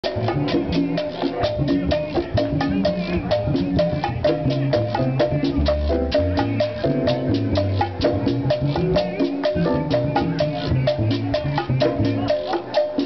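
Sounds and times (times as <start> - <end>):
percussion beat: 0.0 - 13.0
upright bass notes: 0.0 - 13.0.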